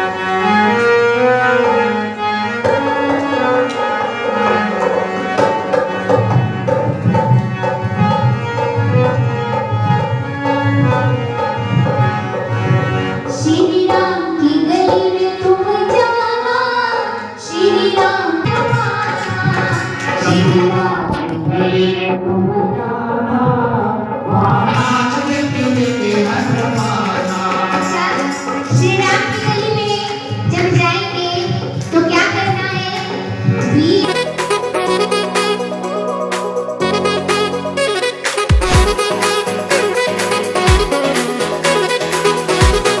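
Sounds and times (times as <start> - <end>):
held instrument notes: 0.0 - 24.0, 24.6 - 43.0
hand drum rhythm: 2.6 - 43.0
person singing: 13.3 - 30.4.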